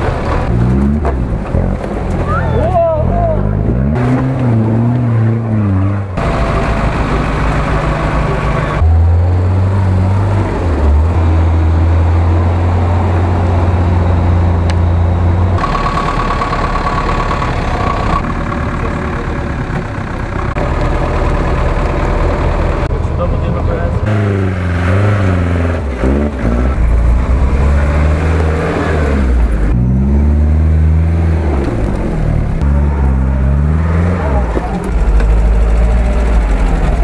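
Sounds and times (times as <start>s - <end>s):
off-road engines running in mud: 0.0s - 37.0s.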